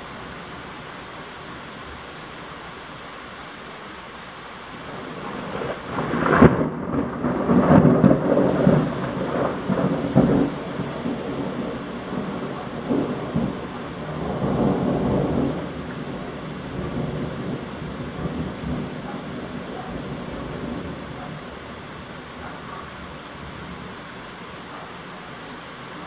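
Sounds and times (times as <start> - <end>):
heavy rain: 0.0 - 26.0
thunder crack and rumble: 4.8 - 22.5.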